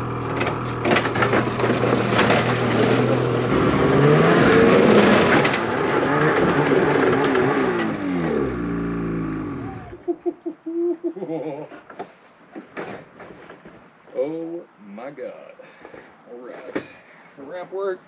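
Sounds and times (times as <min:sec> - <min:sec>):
snowmobile engine revving: 0:00.0 - 0:10.0.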